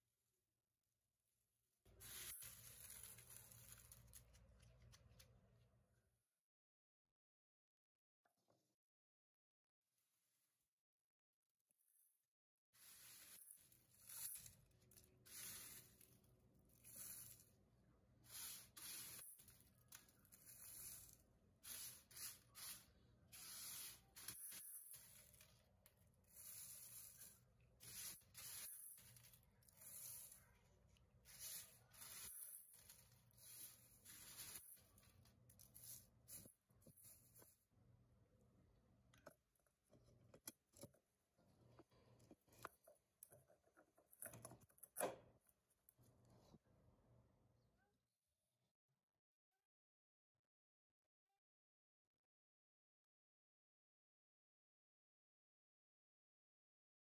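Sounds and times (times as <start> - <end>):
dried onion flakes crackling: 1.9 - 5.3, 12.8 - 17.6, 18.3 - 37.5.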